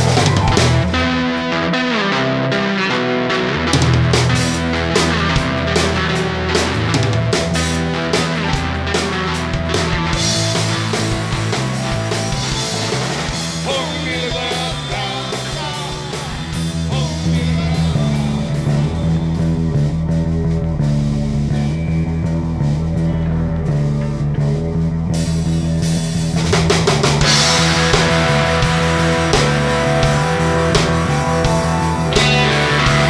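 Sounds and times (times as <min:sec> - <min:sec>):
rock band playing: 0:00.0 - 0:33.0.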